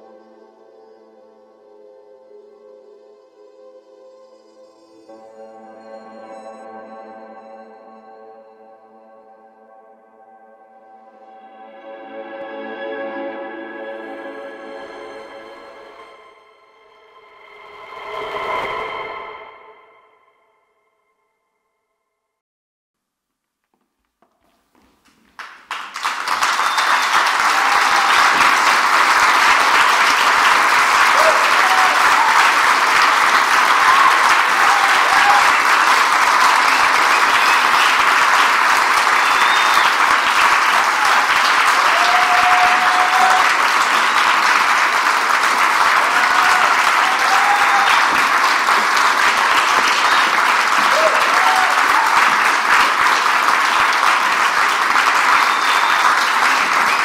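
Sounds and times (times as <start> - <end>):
audience applause: 25.2 - 57.0.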